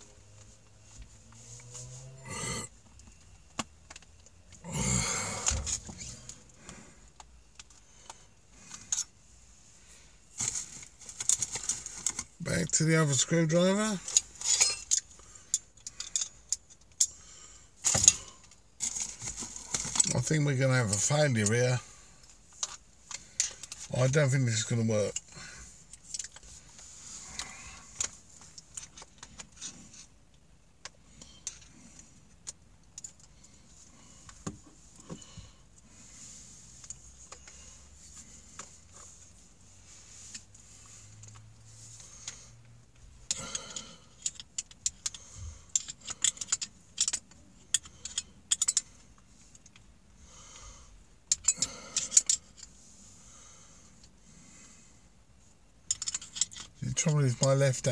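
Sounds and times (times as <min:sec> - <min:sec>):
metal tools clinking and rattling: 0:13.8 - 0:17.2, 0:43.3 - 0:48.9, 0:51.3 - 0:52.7, 0:55.9 - 0:57.6.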